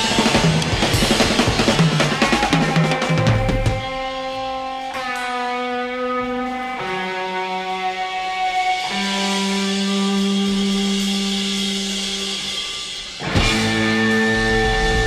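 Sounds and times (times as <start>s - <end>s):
rock music with held guitar notes: 0.0s - 15.0s.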